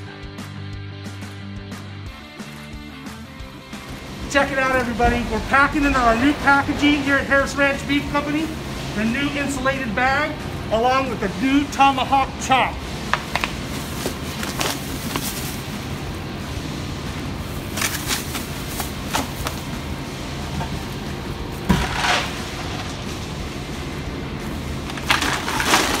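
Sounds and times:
steady low hum: 2.8s - 26.0s
packaging rustling and crinkling: 13.2s - 15.8s, 17.5s - 19.7s, 24.9s - 26.0s.

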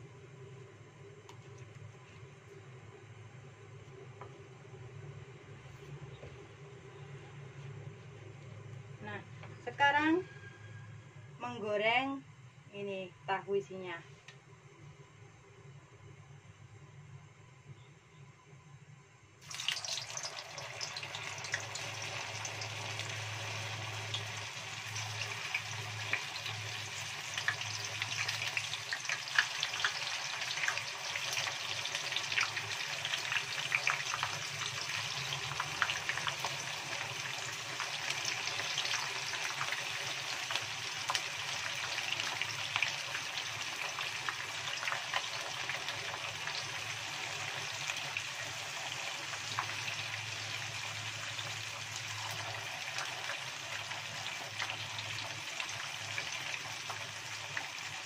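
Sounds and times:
tofu sizzling in hot oil: 19.4s - 58.0s.

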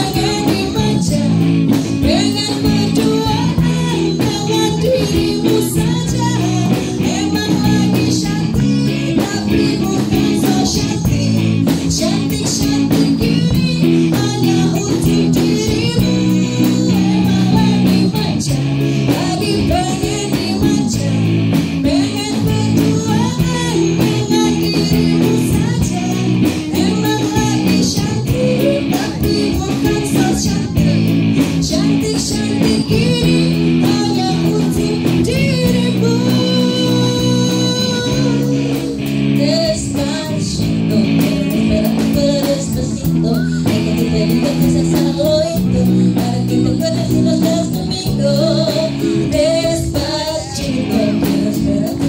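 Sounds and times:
drum kit beat: 0.0s - 52.0s
electric guitar: 0.0s - 52.0s
woman singing: 0.0s - 52.0s.

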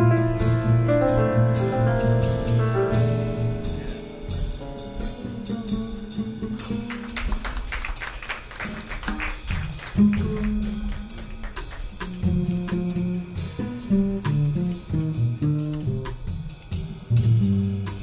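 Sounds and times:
plucked double bass: 0.0s - 7.1s, 9.3s - 18.0s
light cymbal strokes: 10.6s - 18.0s.

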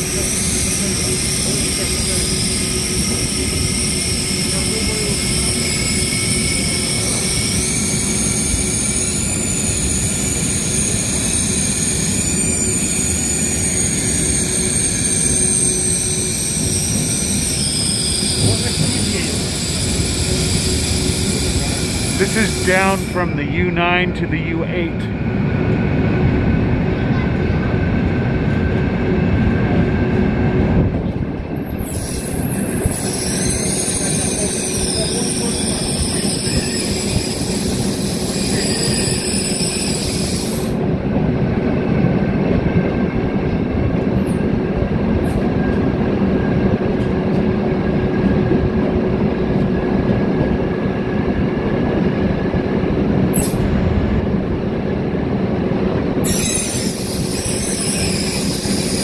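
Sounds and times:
subway train rumbling on rails: 0.0s - 59.0s
high wavering wheel squeal: 0.1s - 22.2s, 31.7s - 40.7s, 53.3s - 53.7s, 56.2s - 59.0s.

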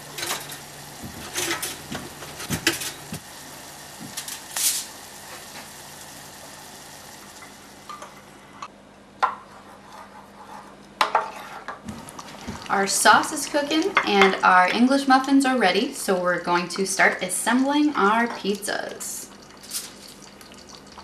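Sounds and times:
wooden spoon scraping a bowl: 9.5s - 11.8s.

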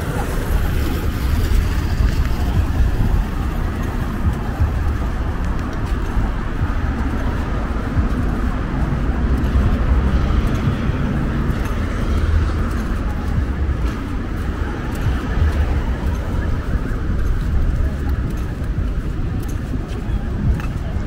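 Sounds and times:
road traffic rumble: 0.0s - 21.0s
wind: 0.0s - 21.0s.

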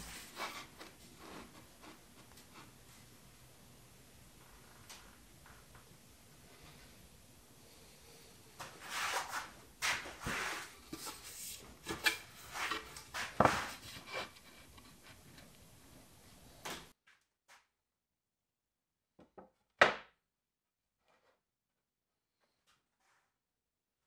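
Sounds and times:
wood boards scraping: 8.8s - 15.0s.

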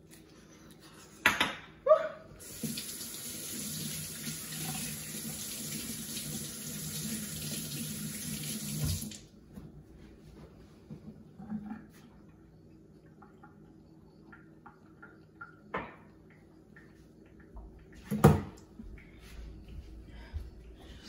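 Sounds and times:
faucet running into sink: 2.4s - 9.3s.

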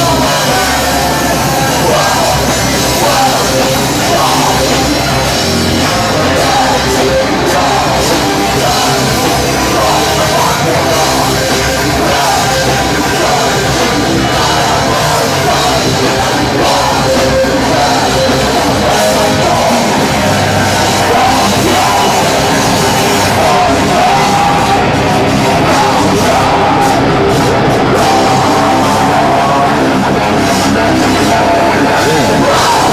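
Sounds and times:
heavy rock band playing: 0.0s - 32.9s.

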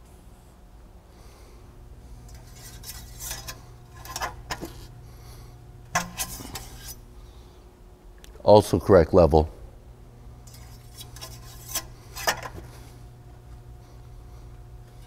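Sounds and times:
faint steady hum: 0.0s - 15.0s
metal dipstick clinking and scraping: 10.5s - 12.6s.

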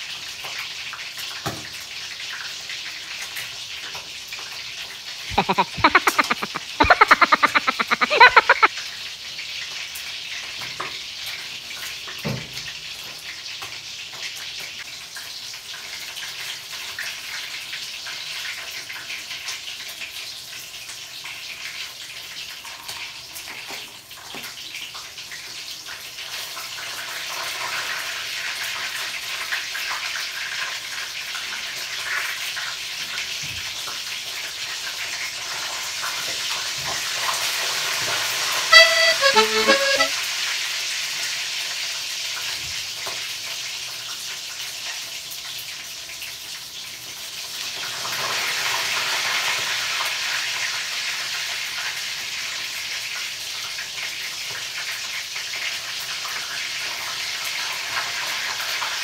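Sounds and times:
chicken sizzling in oil: 0.0s - 39.6s, 40.3s - 59.0s.

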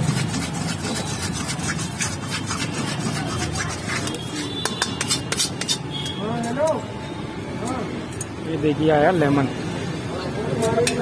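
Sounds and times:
spatula scraping metal pan: 0.0s - 6.2s.

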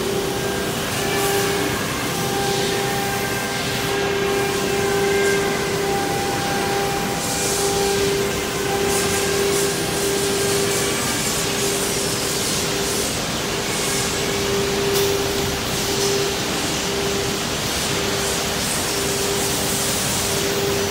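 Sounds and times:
router spindle whining: 0.0s - 11.2s.

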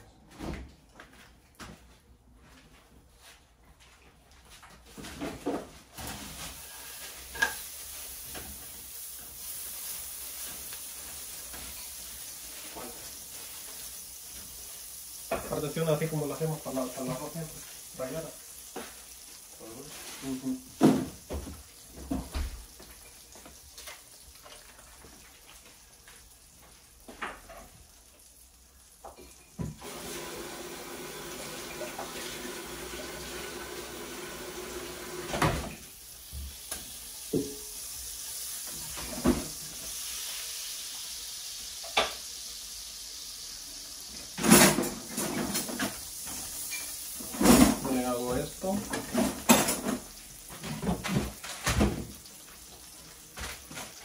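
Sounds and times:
fat sizzling in pans: 5.8s - 54.0s
kitchenware clattering: 48.8s - 52.1s.

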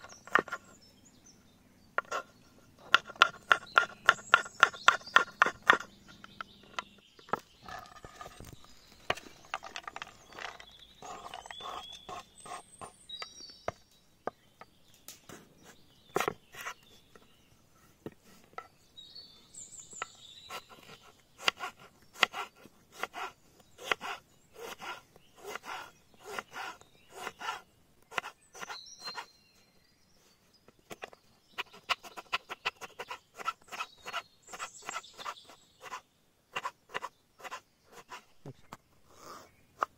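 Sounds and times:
birds chirping: 0.0s - 39.9s
knife chopping on wooden board: 2.8s - 7.4s, 16.2s - 16.8s, 20.5s - 29.3s, 36.6s - 38.6s.

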